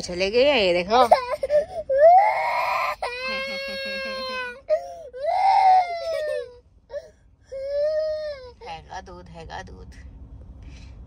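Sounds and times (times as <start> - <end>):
toddler crying: 1.0 - 8.5.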